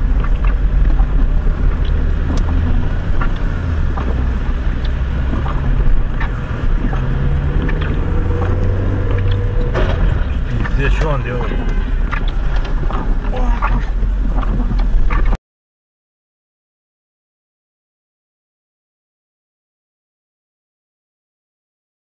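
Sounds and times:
engine and tyres rumbling: 0:00.0 - 0:15.4
faint clicks: 0:00.1 - 0:15.4.

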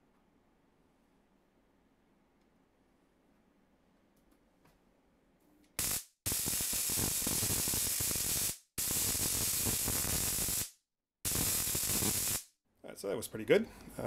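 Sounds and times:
high-voltage coil crackling buzz: 0:05.8 - 0:12.5.

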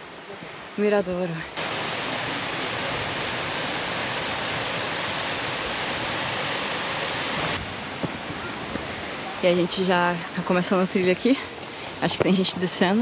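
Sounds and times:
waterfall rushing: 0:01.5 - 0:10.8.

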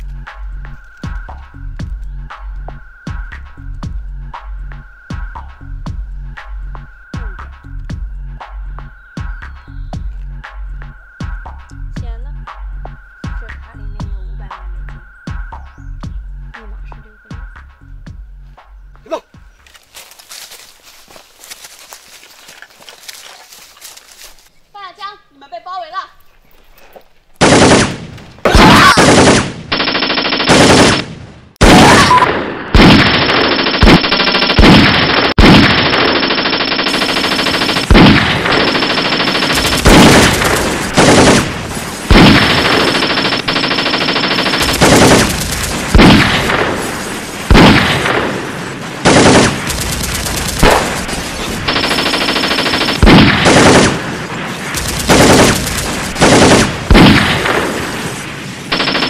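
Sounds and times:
machine-gun fire with echo: 0:27.4 - 0:59.0.

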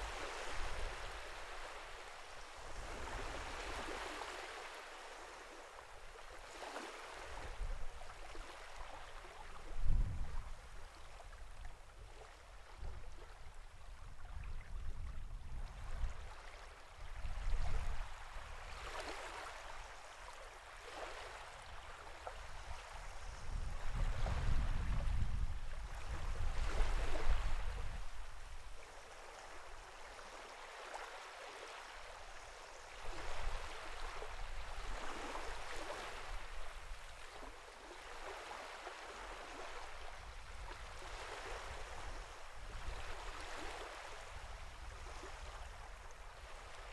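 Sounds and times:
sea waves lapping: 0:28.7 - 0:46.9.

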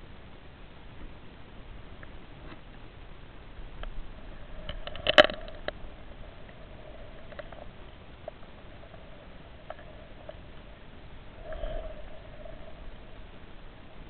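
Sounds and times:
faint steady hum: 0:00.0 - 0:14.0
faint ticks: 0:03.8 - 0:04.0, 0:04.6 - 0:10.7.

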